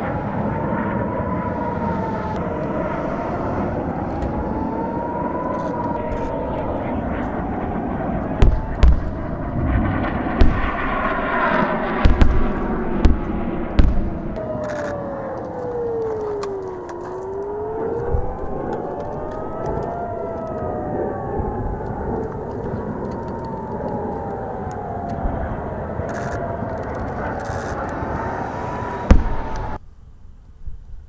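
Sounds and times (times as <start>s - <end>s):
air-raid sirens wailing: 0.0s - 29.8s
sharp explosion booms: 8.3s - 14.4s, 29.0s - 29.8s.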